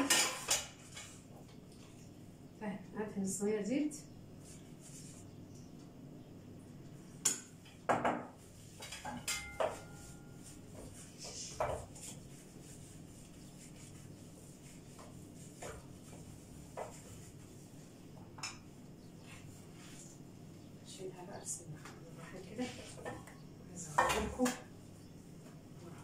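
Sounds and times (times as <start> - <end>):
metal trays and utensils clattering: 0.0 - 1.2, 8.8 - 10.2.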